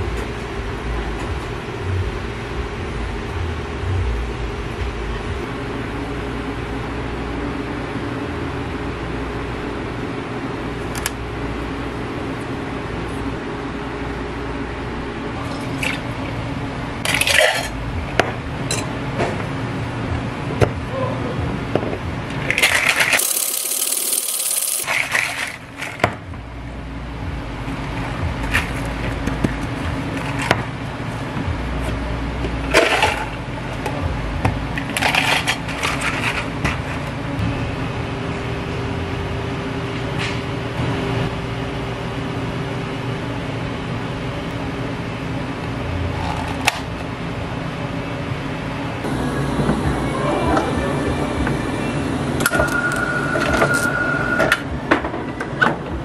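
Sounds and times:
fan hum: 0.0s - 56.0s
metal cocktail shaker rattling: 22.7s - 25.5s
liquid pouring: 23.2s - 25.4s.

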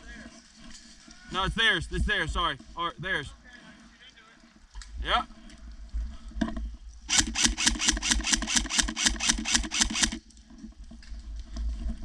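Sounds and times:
airsoft rifle burst: 7.1s - 10.2s
mechanical whir: 7.1s - 10.2s.

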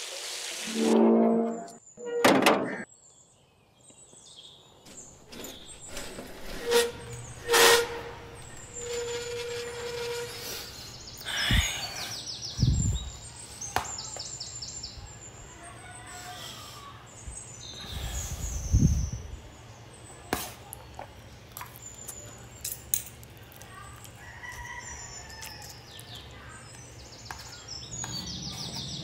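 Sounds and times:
held horn-like tone: 0.7s - 2.4s, 6.4s - 10.8s
small birds chirping: 10.3s - 29.0s.

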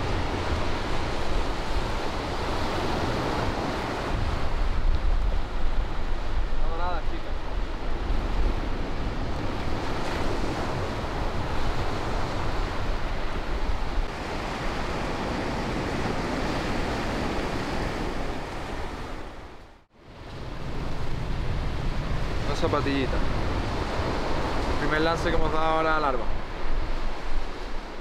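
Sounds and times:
surf washing up beach: 0.0s - 28.0s
wind buffeting microphone: 0.0s - 28.0s.

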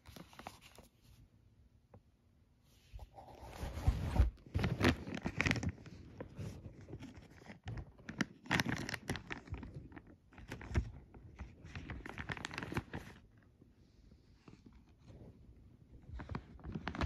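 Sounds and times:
plastic bag crinkling and tearing: 4.4s - 13.2s, 16.2s - 17.0s.

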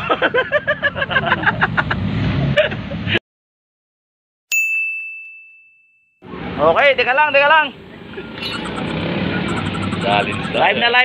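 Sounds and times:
street background noise: 0.0s - 3.2s, 6.2s - 11.0s.

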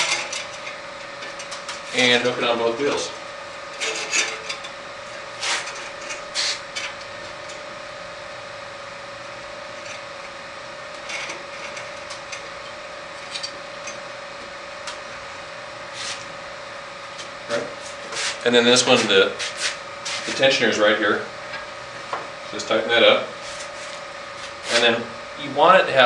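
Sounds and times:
bandsaw blade scraping: 3.8s - 4.7s, 5.3s - 6.8s, 15.9s - 16.3s, 17.8s - 20.4s.

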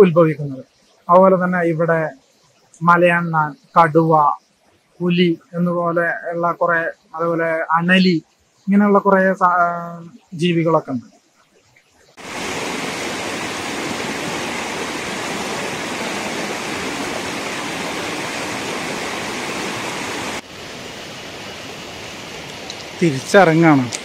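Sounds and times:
shallow water running over rock: 12.2s - 20.5s
stream rushing over boulders: 12.2s - 24.0s.

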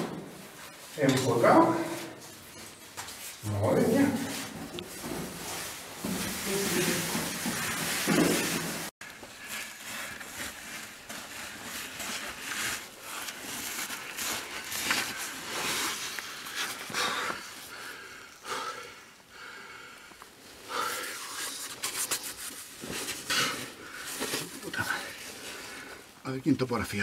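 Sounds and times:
person breathing hard: 15.8s - 21.5s.

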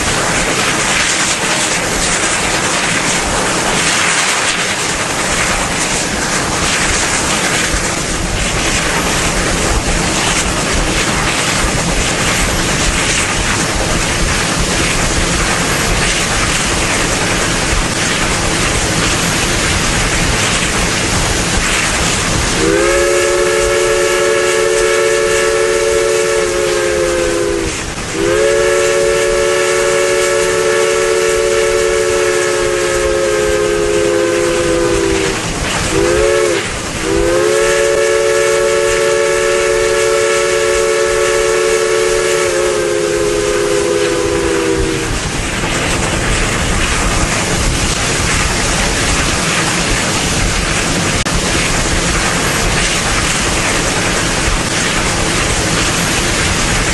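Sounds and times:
steam hissing: 0.0s - 56.9s
steam locomotive chime whistle: 22.6s - 45.2s.

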